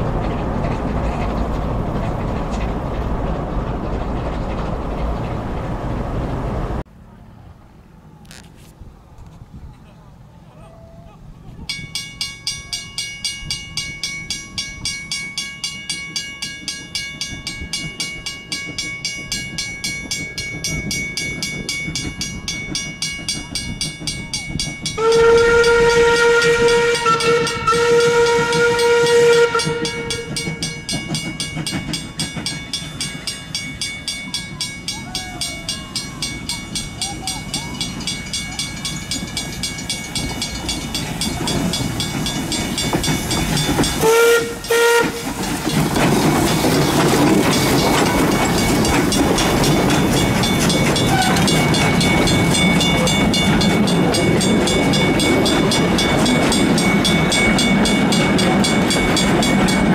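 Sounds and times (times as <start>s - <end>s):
steam locomotive chuffing: 0.0s - 6.8s, 11.8s - 59.9s
steam whistle blast: 25.0s - 30.4s, 44.0s - 45.3s.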